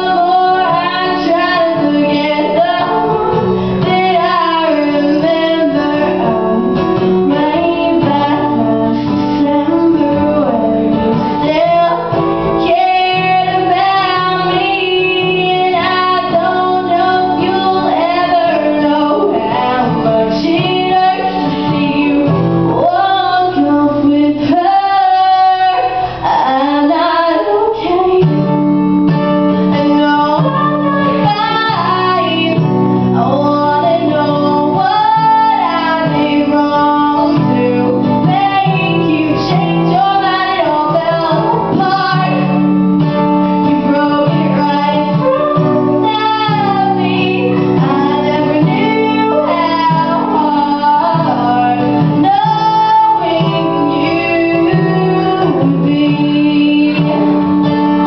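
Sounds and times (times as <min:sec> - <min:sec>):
acoustic guitar: 0:00.0 - 0:58.0
woman singing a pop song: 0:00.0 - 0:58.0.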